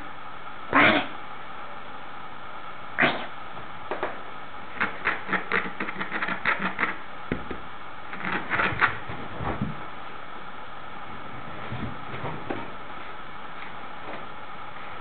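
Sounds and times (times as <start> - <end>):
puppy scrabbling on fabric: 8.2 - 9.9.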